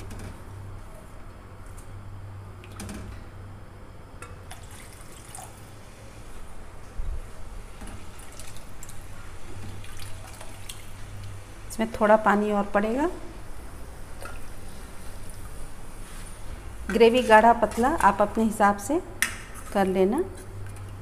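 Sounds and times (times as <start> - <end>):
steady low hum: 0.0 - 21.0
water sloshing in a pan: 7.8 - 11.4.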